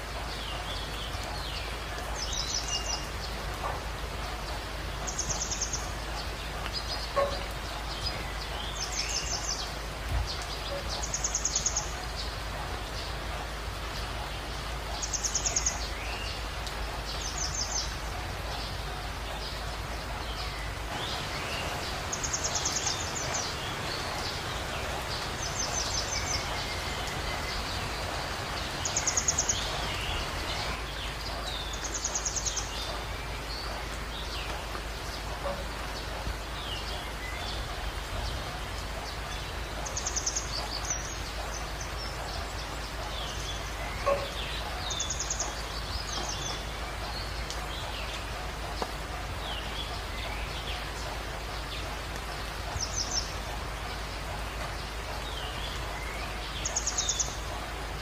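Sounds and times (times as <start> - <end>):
heavy rain hiss: 0.0 - 58.0
wild birds chirping: 0.0 - 58.0.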